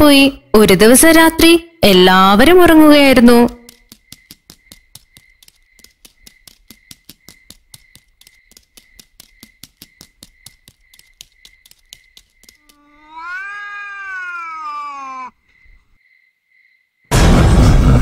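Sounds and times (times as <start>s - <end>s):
crickets chirping: 2.9s - 17.1s
cat meowing: 12.6s - 15.4s.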